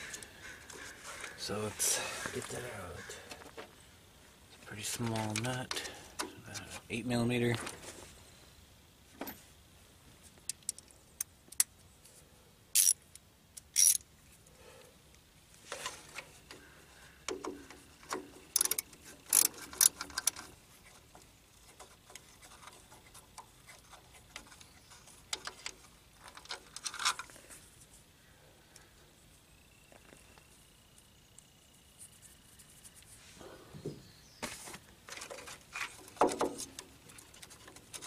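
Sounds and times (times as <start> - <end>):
wrench clicking on metal: 12.8 - 14.0, 18.5 - 20.4.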